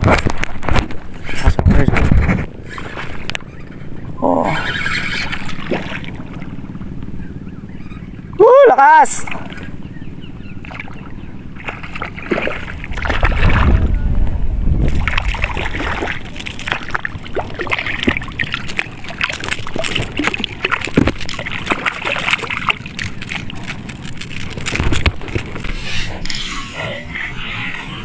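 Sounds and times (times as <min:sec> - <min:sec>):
seawater sloshing at shoreline: 0:01.1 - 0:14.1, 0:14.8 - 0:27.1
low rumble: 0:09.2 - 0:18.6.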